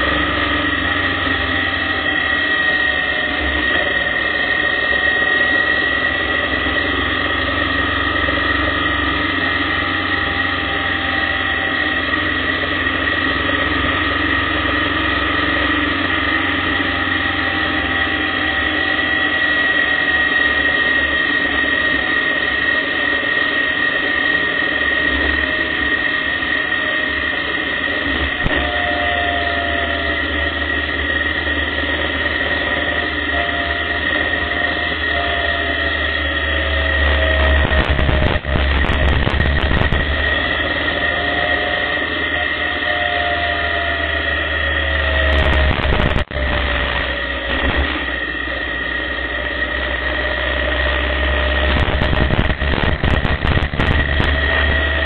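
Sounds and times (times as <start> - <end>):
motorcycle engine running: 29.8 - 42.7, 45.0 - 55.0
wind noise on microphone: 37.6 - 40.3, 45.3 - 48.0, 51.6 - 55.0.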